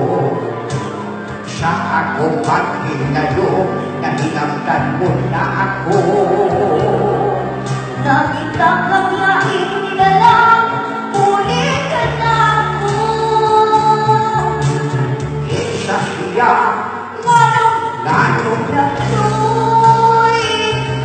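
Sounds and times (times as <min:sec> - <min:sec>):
instrumental backing music: 0:00.0 - 0:21.0
person singing long notes: 0:00.0 - 0:21.0.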